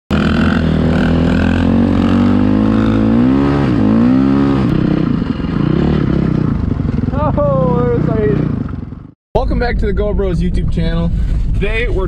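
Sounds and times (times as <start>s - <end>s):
dirt bike engine revving: 0.1s - 9.2s.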